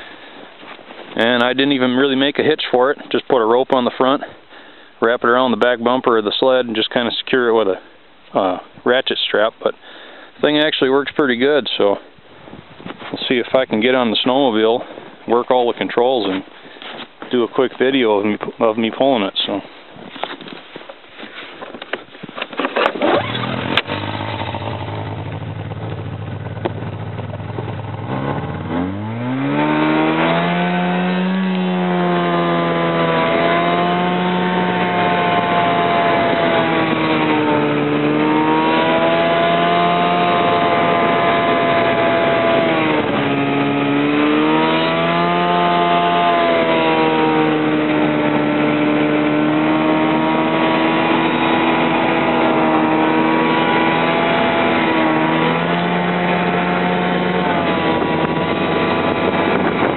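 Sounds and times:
snowmobile engine revving: 22.6s - 59.9s.

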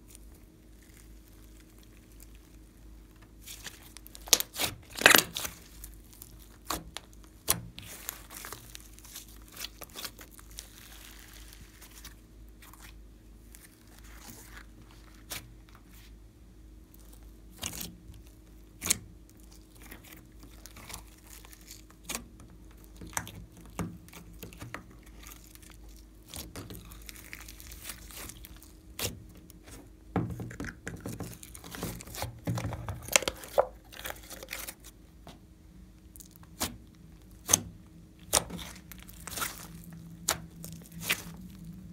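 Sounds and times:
slime squishing: 0.0s - 16.1s, 16.8s - 35.4s, 36.0s - 41.9s
slime popping and crackling: 3.4s - 12.1s, 18.7s - 29.8s, 36.2s - 41.6s.

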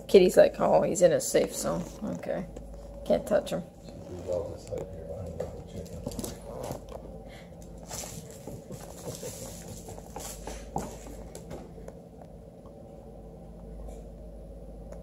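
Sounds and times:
puppy claws on hardwood floor: 4.6s - 7.0s, 7.6s - 11.7s.

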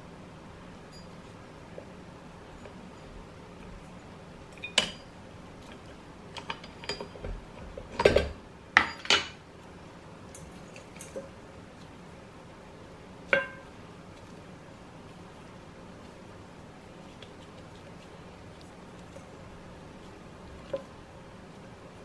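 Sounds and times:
dough hook knocking metal bowl: 13.4s - 13.7s.

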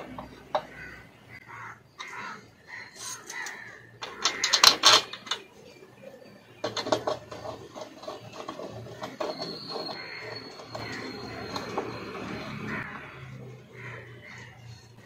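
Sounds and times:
harsh pulsed animal calls: 7.4s - 15.0s.

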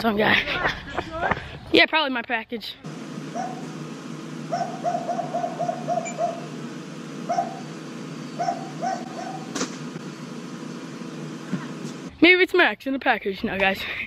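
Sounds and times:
dog barking: 3.3s - 3.7s, 4.5s - 6.4s, 7.3s - 7.6s, 8.4s - 9.5s.

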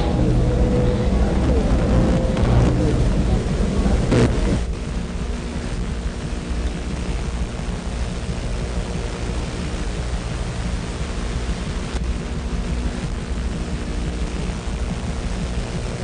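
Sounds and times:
low hum tones: 0.0s - 16.0s
low rumble: 0.0s - 16.0s.

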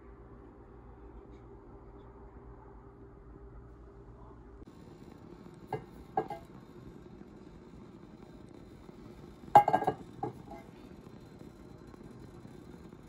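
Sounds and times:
kitchenware clinking and knocking: 5.7s - 6.4s, 9.6s - 10.7s.

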